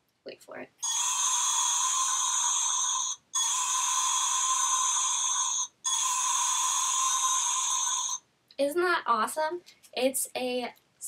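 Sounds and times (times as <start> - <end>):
tinny toy dinosaur roar: 0.8 - 8.2.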